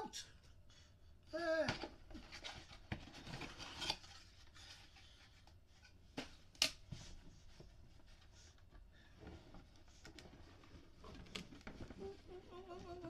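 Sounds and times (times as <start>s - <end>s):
paper and cardboard rustling: 1.7s - 8.6s.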